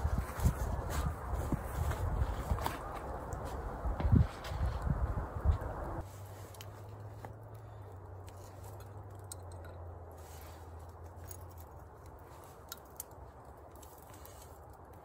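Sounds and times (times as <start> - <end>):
campfire crackling and popping: 10.8 - 15.0.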